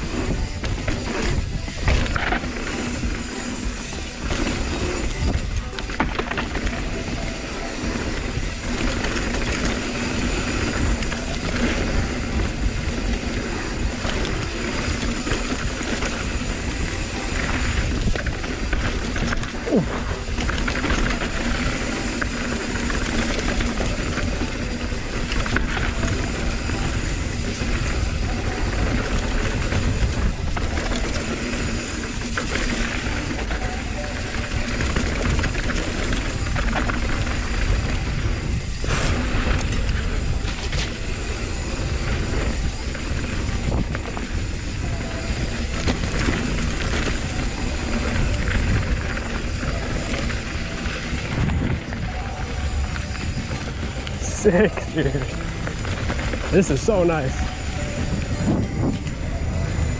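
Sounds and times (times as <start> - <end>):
bike rattling: 0.0 - 59.9
bike tyres rolling over dirt: 0.0 - 59.9
wind rushing over microphone: 0.0 - 59.9.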